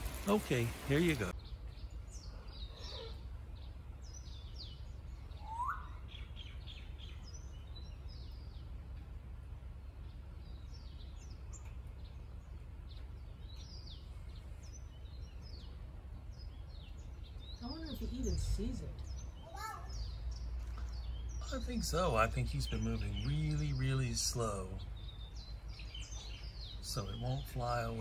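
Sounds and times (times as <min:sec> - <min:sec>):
birds chirping: 0:00.0 - 0:28.0
steady low rumble: 0:00.0 - 0:28.0
rising bird whistle: 0:04.7 - 0:06.6.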